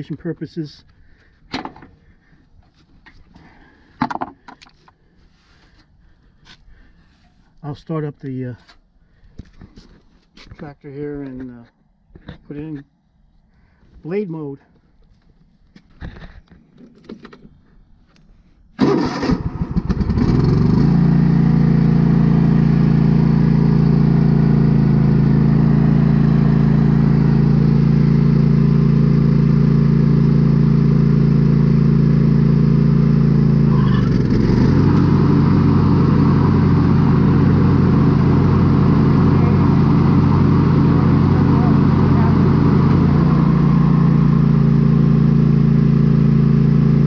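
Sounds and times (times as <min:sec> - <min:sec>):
lawn tractor engine running: 0:18.8 - 0:47.0.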